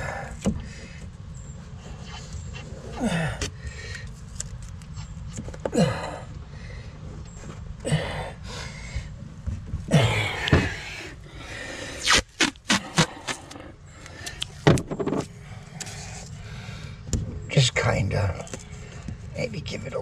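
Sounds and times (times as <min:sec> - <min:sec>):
masking tape pulled and torn: 0:12.0 - 0:13.6.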